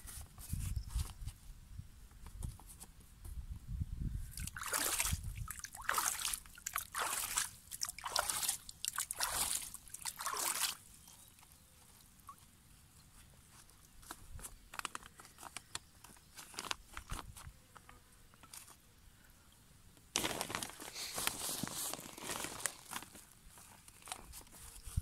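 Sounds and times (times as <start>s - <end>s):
water splashing and trickling: 4.3s - 13.1s.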